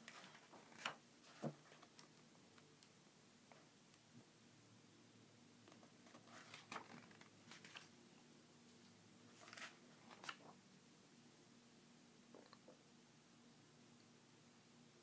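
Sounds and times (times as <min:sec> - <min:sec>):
book pages turning: 0:00.0 - 0:02.2, 0:06.0 - 0:07.9, 0:09.3 - 0:10.6.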